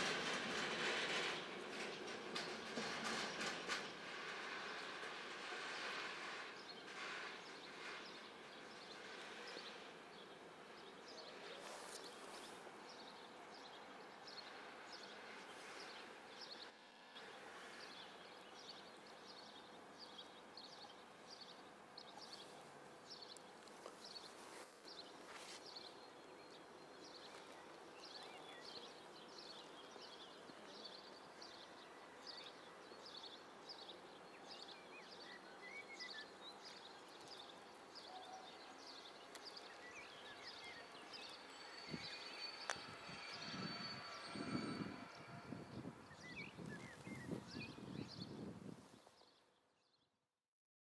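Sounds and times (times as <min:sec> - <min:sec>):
small bird chirping: 0:17.6 - 0:48.5.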